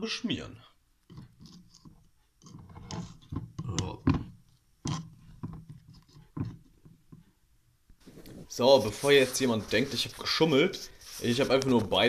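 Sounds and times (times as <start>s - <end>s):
jar handling rustles and knocks: 1.0s - 7.3s.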